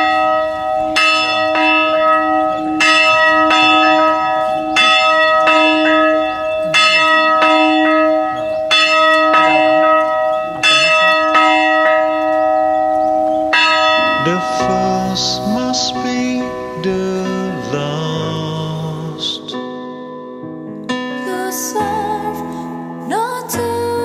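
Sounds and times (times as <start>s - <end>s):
church bell ringing: 0.0s - 23.0s.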